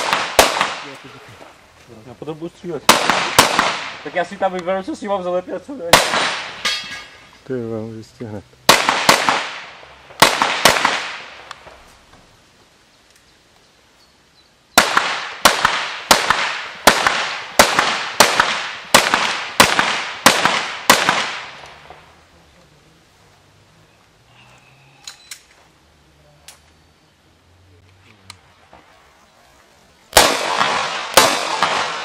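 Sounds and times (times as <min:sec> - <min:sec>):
pistol shots with echo: 0:00.0 - 0:01.1, 0:02.9 - 0:04.2, 0:05.9 - 0:06.9, 0:08.7 - 0:11.4, 0:14.8 - 0:21.6, 0:30.1 - 0:32.0.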